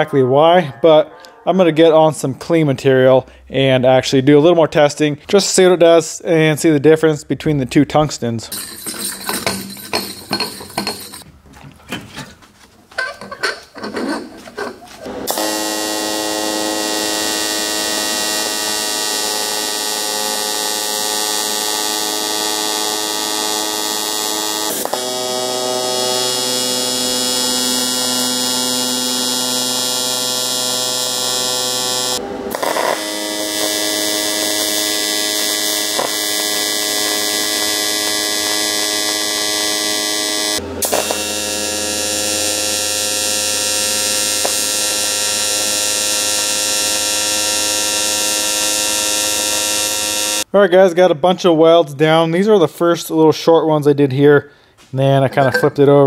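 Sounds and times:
light knocks and clinks: 8.5 - 12.3
welding arc buzz: 15.0 - 50.5.

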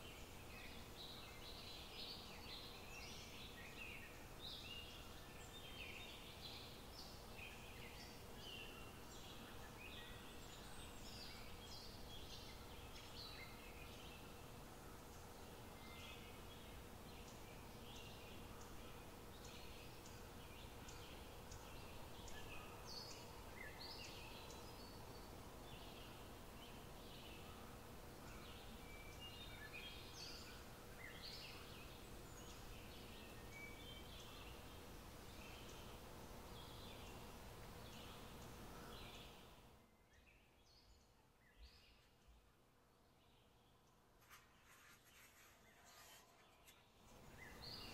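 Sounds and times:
faint steady hiss: 0.0 - 47.9.

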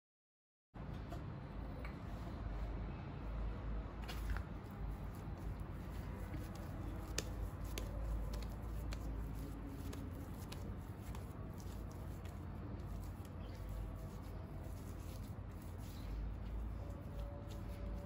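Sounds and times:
low room rumble: 0.8 - 18.0
dough squishing: 4.0 - 18.0.

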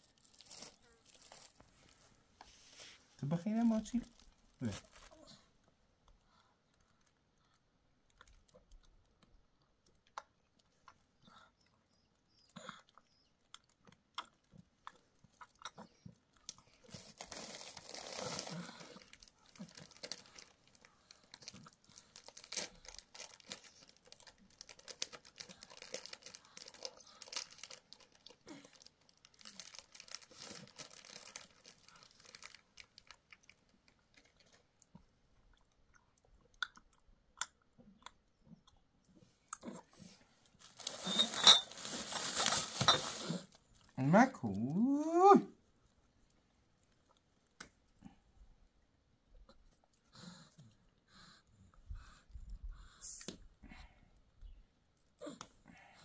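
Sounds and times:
plastic wrappers crinkling: 0.0 - 2.2, 2.8 - 5.3, 16.5 - 34.6, 40.6 - 43.8
chewing snacks: 4.0 - 44.6.

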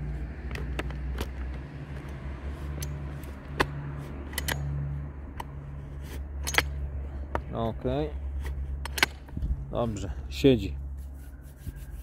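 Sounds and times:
plastic and metal clicks: 0.4 - 2.2, 2.8 - 4.7, 8.4 - 9.5.

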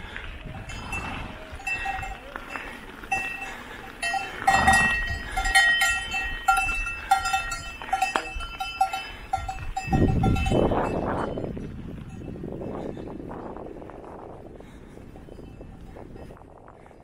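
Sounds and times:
livestock bells clanking: 0.6 - 12.7, 15.1 - 16.4.

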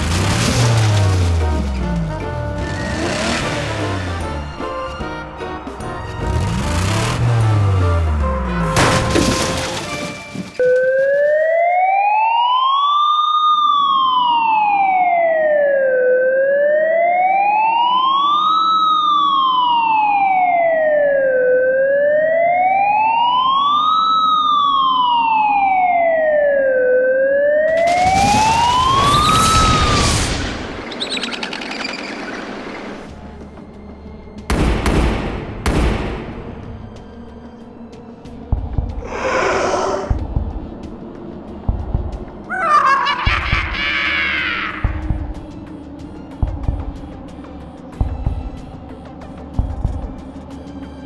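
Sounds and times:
police siren wailing: 10.6 - 30.8, 42.4 - 50.8
low rumble: 36.2 - 42.5.

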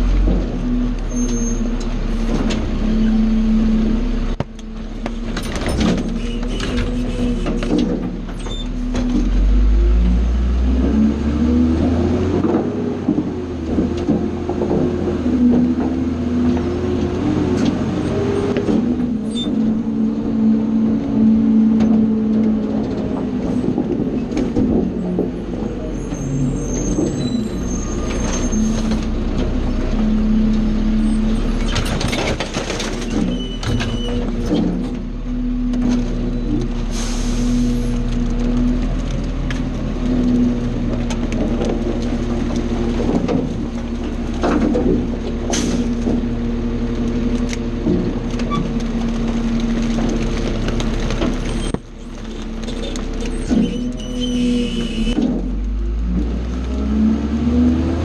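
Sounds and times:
trash and metal clattering: 0.0 - 56.9
diesel engine and hydraulics: 0.0 - 58.0
trash being crushed: 26.7 - 36.3, 37.9 - 53.9.

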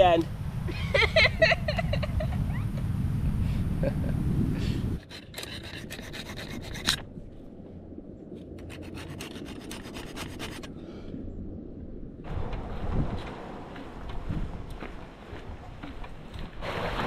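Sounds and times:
metal file scraping steel: 5.0 - 7.0, 8.6 - 10.7.

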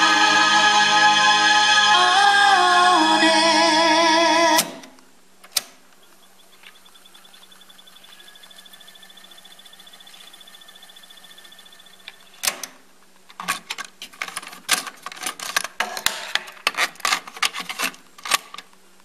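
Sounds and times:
cassette deck whirring: 4.5 - 14.4
plastic cassette clicks: 13.3 - 18.8.

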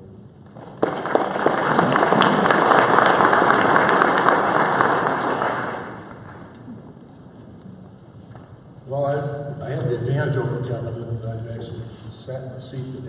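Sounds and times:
audience applauding: 0.6 - 6.7.

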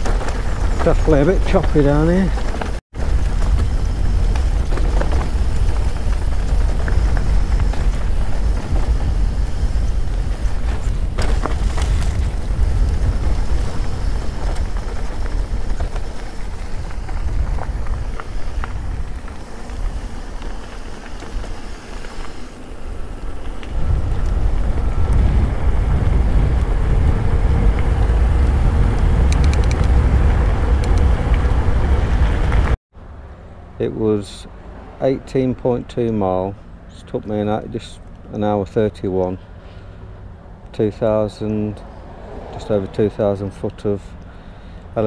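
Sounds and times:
bike rattling over rough trail: 0.0 - 32.8
wind rumble on microphone: 0.0 - 32.8.

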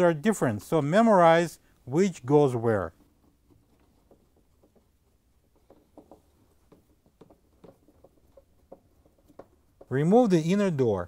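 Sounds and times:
taps on plastic panel: 3.7 - 10.0.

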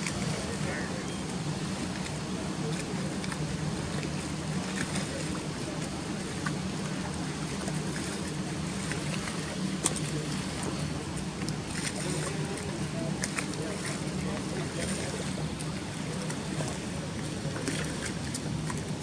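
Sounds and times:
boat engine humming: 0.0 - 19.0.

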